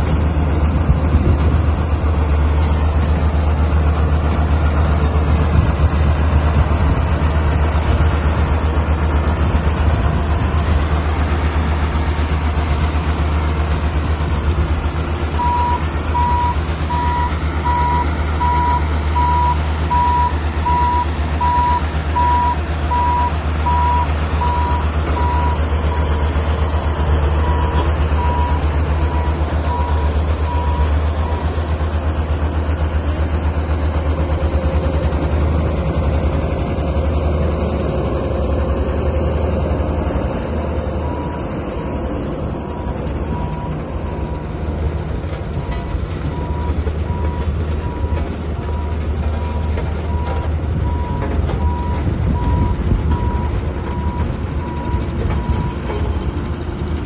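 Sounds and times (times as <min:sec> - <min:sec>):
diesel engine running: 0:00.0 - 0:57.0
reverse alarm beeping: 0:15.4 - 0:25.6.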